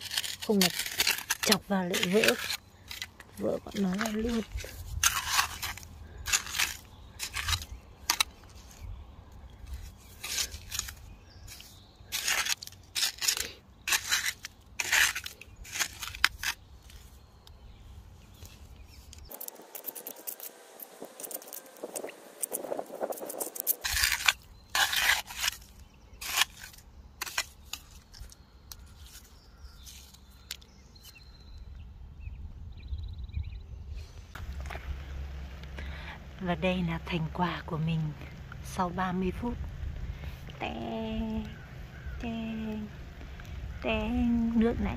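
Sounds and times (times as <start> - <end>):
trowel scraping wet sand: 0.0 - 8.9, 9.7 - 17.0, 19.2 - 30.2.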